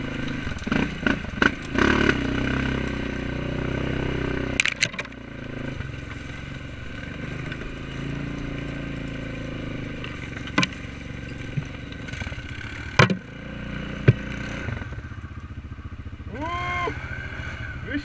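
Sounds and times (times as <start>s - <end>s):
atv engine running: 0.0s - 18.0s
sharp knocks: 12.9s - 13.3s, 14.0s - 14.5s
person calling out: 16.3s - 17.0s.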